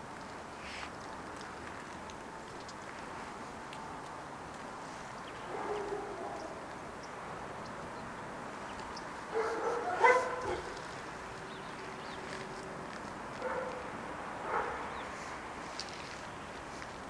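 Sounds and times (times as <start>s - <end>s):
dog barking and yelping: 9.3s - 10.8s, 13.4s - 13.8s, 14.5s - 14.9s.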